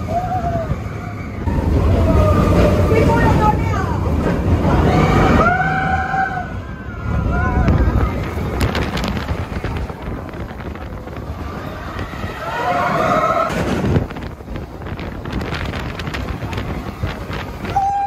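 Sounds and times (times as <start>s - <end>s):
roller coaster rumble and clatter: 0.0s - 18.0s
wind buffeting microphone: 0.0s - 18.0s
riders screaming: 4.7s - 8.8s, 11.4s - 13.7s, 17.6s - 18.0s.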